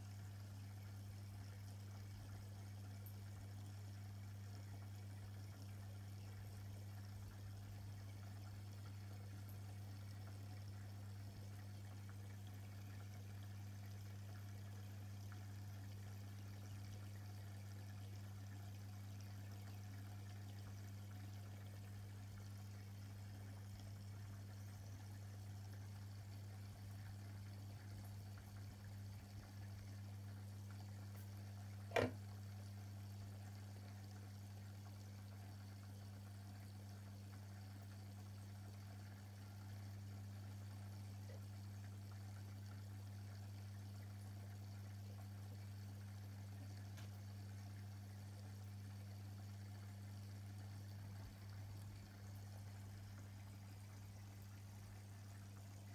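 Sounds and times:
aquarium pump humming: 0:00.0 - 0:55.9
water trickling softly: 0:00.0 - 0:55.9
short knock: 0:31.9 - 0:32.2.

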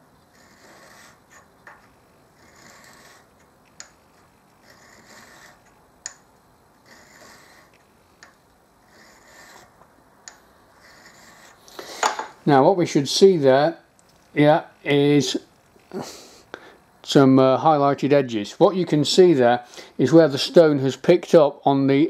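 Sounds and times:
sharpening stone rubbing on metal: 0:00.3 - 0:01.5, 0:02.4 - 0:03.3, 0:04.6 - 0:05.8, 0:06.8 - 0:07.8, 0:08.8 - 0:09.8, 0:10.8 - 0:11.6.

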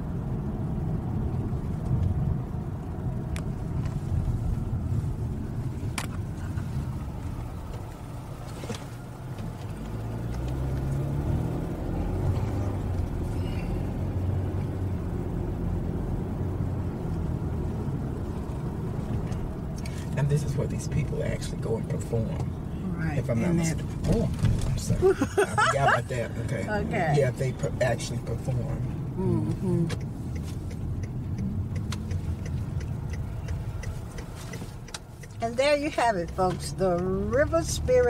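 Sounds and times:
car engine and tyre rumble: 0:00.0 - 0:38.0.

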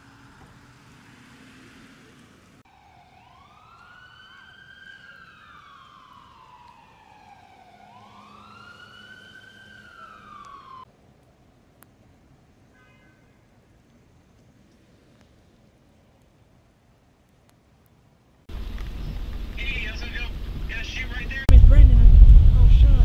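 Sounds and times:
emergency vehicle siren wailing: 0:02.1 - 0:10.9.

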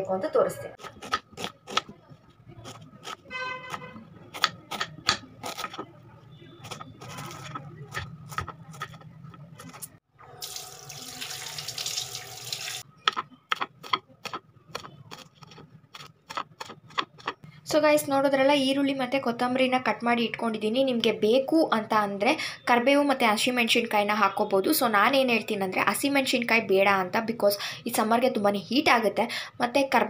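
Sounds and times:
knife chopping on wooden board: 0:00.8 - 0:02.0, 0:02.6 - 0:05.8, 0:13.1 - 0:17.4.

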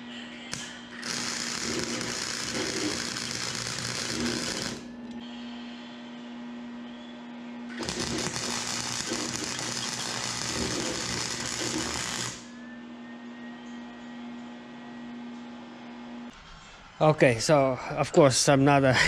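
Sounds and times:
steady hum: 0:00.0 - 0:16.3
electric arc welding crackle: 0:00.5 - 0:05.0, 0:07.7 - 0:12.5.

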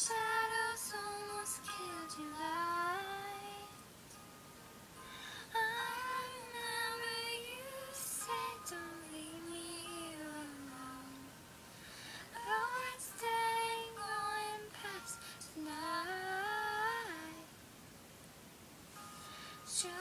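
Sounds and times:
woman singing unaccompanied: 0:00.0 - 0:03.8, 0:05.5 - 0:11.4, 0:12.3 - 0:17.5, 0:19.7 - 0:20.0.

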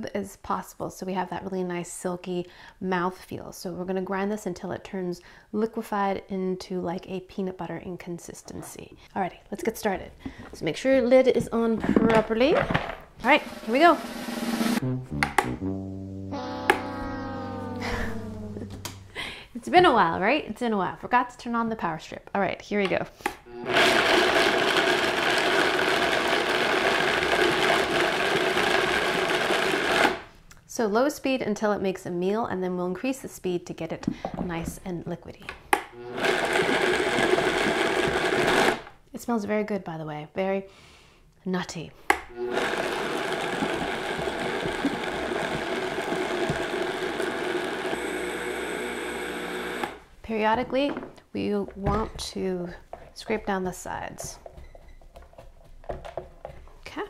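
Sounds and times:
blender chopping nuts: 0:23.6 - 0:30.3, 0:35.9 - 0:38.9, 0:42.2 - 0:50.0.

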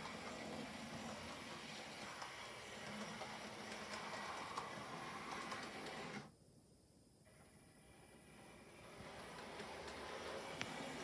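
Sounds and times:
wheels clicking over rail joints: 0:00.0 - 0:06.2, 0:08.7 - 0:11.0
model train motor whir: 0:00.0 - 0:06.3, 0:07.8 - 0:11.0.

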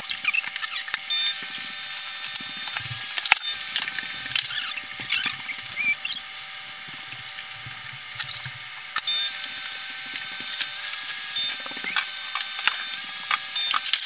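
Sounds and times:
short squeaks: 0:00.0 - 0:01.0, 0:04.4 - 0:06.3.

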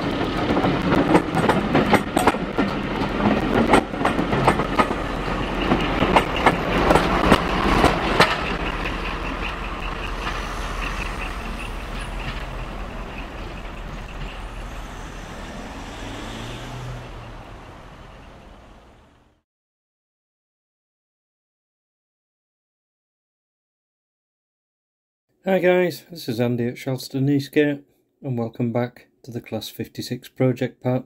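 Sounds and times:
model train running rumble: 0:00.0 - 0:19.4
wheels clicking over rail joints: 0:00.0 - 0:19.4.

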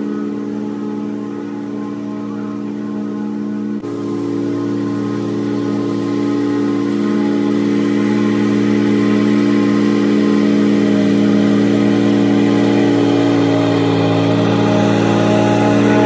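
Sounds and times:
riding lawn mower engine running: 0:00.0 - 0:16.0.

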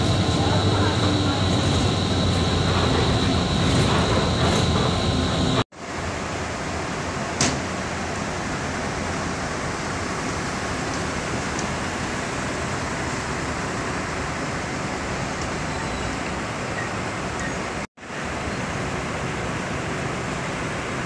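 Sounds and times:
steady rushing noise: 0:00.0 - 0:15.2.

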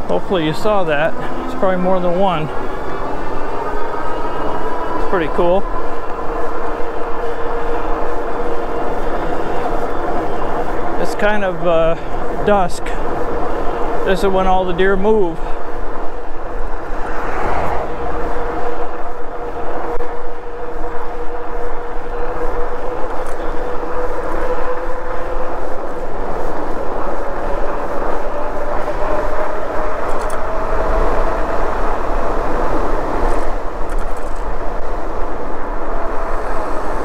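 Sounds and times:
electric bike motor hum: 0:00.0 - 0:37.0
wind rushing: 0:00.0 - 0:37.0.

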